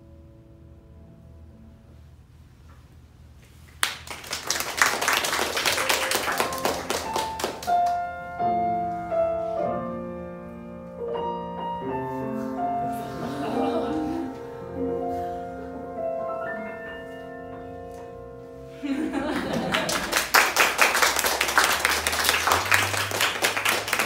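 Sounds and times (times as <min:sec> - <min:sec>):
applause: 0:03.7 - 0:08.0, 0:19.3 - 0:24.0
slow piano melody: 0:05.4 - 0:24.0.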